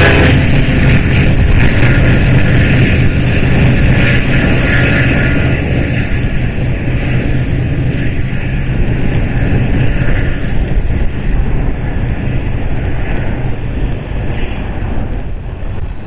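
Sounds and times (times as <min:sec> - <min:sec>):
diesel locomotives rumbling: 0:14.6 - 0:16.0
train wheels on rails: 0:14.7 - 0:16.0.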